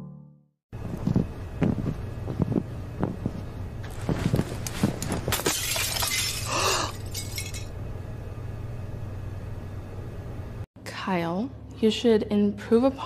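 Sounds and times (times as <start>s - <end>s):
shattering crash: 5.0s - 7.7s.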